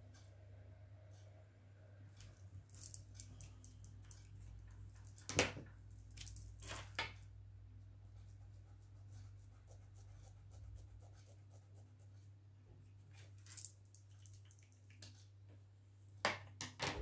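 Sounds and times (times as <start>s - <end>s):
low electrical hum: 0.0s - 17.0s
marker scratching on paper: 8.1s - 12.2s.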